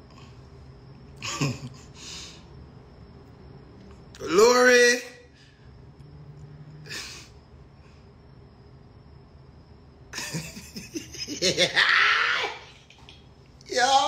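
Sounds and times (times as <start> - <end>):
man laughing: 1.2 - 2.0, 10.2 - 12.1.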